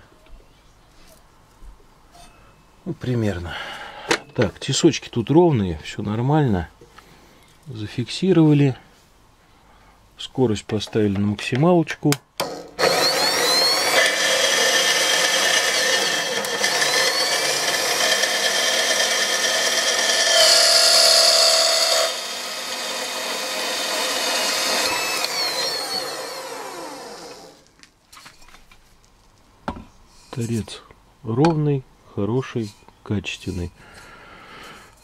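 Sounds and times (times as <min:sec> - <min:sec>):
band saw cutting metal: 0:12.4 - 0:27.6.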